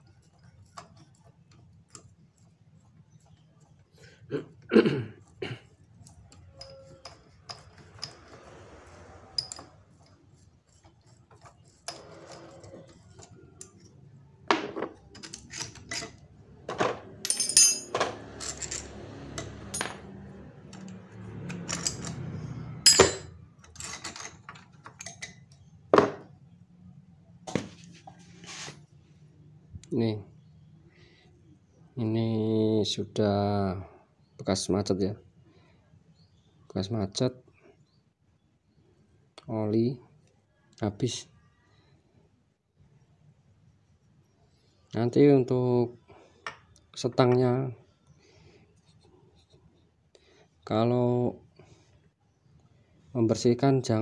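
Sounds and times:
metal tools clinking and scraping: 6.0 - 14.0, 14.6 - 25.7.

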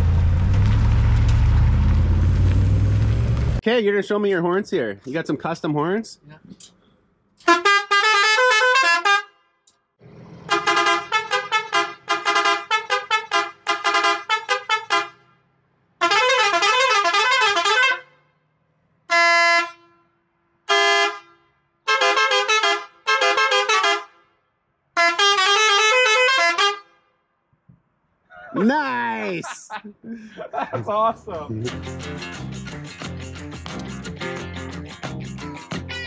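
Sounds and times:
truck horn blasts playing notes: 7.4 - 9.6, 10.5 - 15.4, 16.0 - 18.4, 19.1 - 24.4, 25.0 - 27.1.

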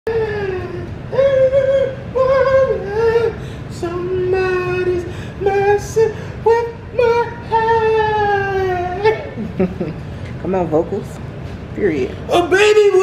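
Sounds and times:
person singing long held notes: 0.1 - 9.3.

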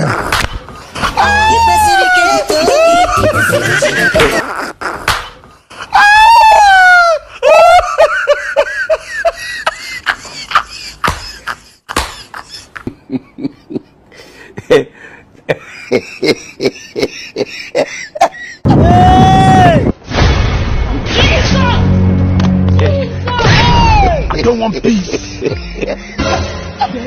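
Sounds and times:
person laughing: 1.1 - 4.7, 7.2 - 14.0, 14.6 - 18.7, 24.3 - 27.0
high wailing voice: 1.2 - 4.5.

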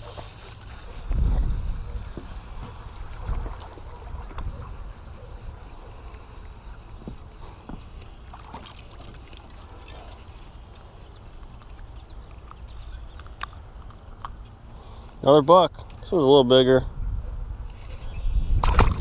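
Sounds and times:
wind rumbling on microphone: 0.0 - 7.9, 16.3 - 19.0
water splashes: 0.0 - 10.6, 18.6 - 19.0.

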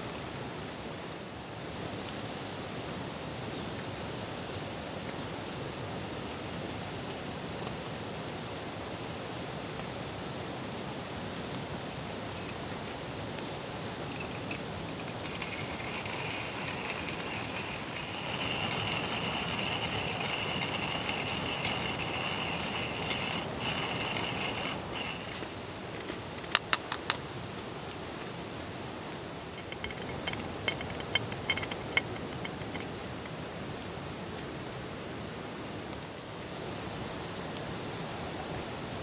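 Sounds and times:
light clicks and clinks: 14.1 - 27.2, 29.5 - 33.4.

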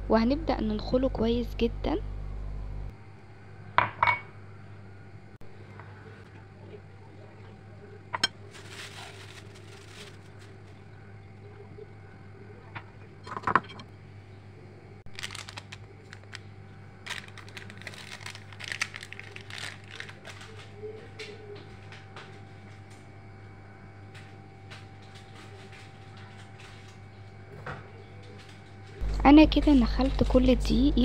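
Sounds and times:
faint steady hum: 0.0 - 31.0
scraping and crinkling: 8.2 - 10.9, 15.1 - 23.1, 24.1 - 29.1.

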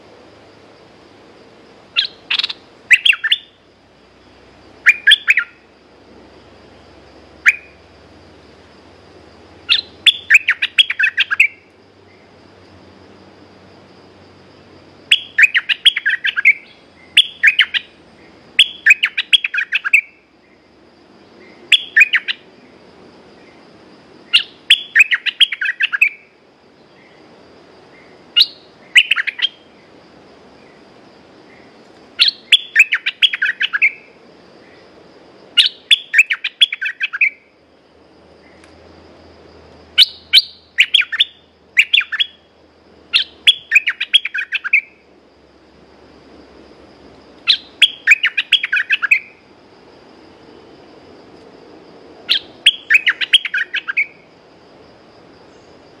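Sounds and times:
bulbul singing chattering phrases: 2.0 - 3.6, 4.8 - 5.7, 7.4 - 7.9, 9.6 - 12.3, 15.1 - 18.0, 18.6 - 20.2, 24.3 - 26.3, 28.4 - 29.7, 32.2 - 34.1, 35.6 - 37.4, 40.0 - 42.5, 43.1 - 45.0, 47.5 - 49.4, 52.3 - 54.3.

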